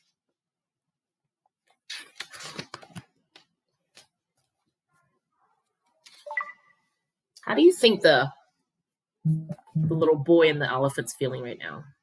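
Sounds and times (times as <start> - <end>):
paper page turning: 1.6 - 4.5.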